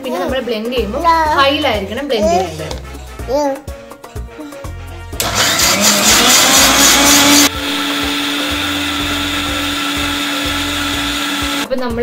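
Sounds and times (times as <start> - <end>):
mixer grinder whining: 5.2 - 11.7.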